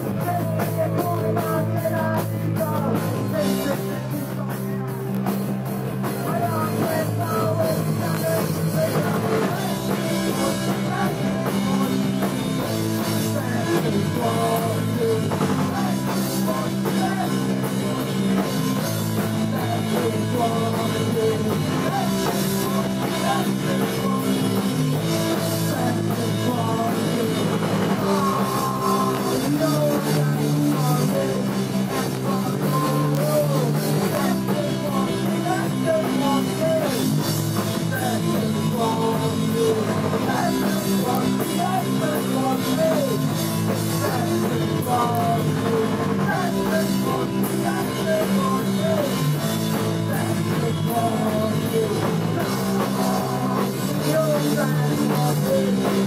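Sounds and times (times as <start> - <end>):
drum kit: 0.0 - 56.0
electric guitar: 0.0 - 56.0
man singing into microphone: 0.0 - 56.0.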